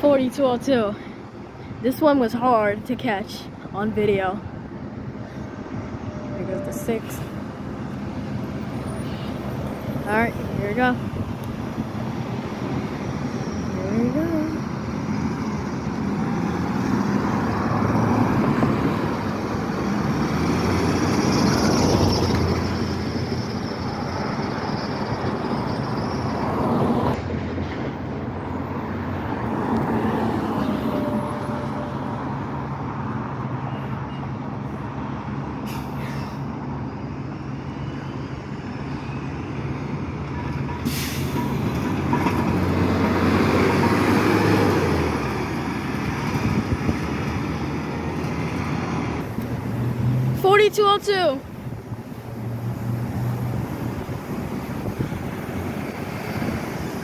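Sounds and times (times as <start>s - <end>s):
bus diesel engine passing: 0.0s - 57.0s
street traffic: 0.0s - 57.0s
air brakes hissing: 35.6s - 36.6s, 40.8s - 41.6s.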